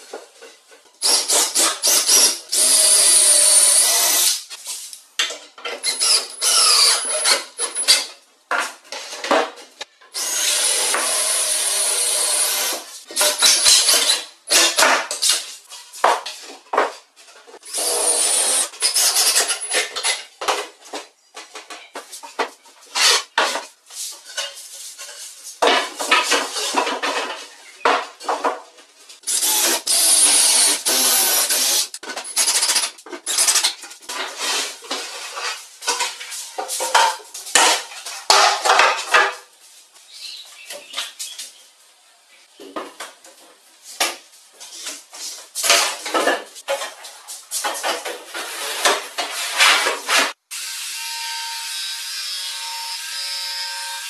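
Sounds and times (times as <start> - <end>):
wood and tools clattering: 5.2 - 39.6, 42.6 - 50.4.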